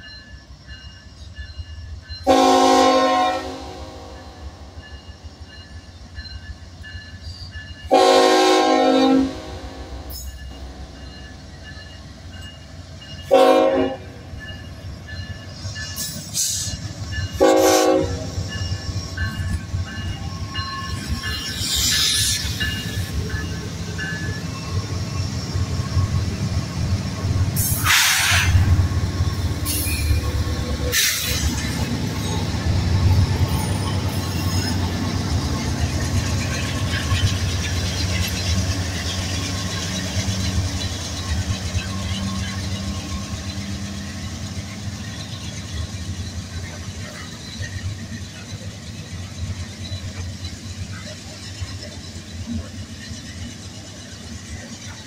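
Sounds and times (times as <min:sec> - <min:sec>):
crossing bell dinging: 0:00.0 - 0:27.5
diesel locomotive rumbling past: 0:00.0 - 0:55.0
short bursts of hiss: 0:27.6 - 0:28.6.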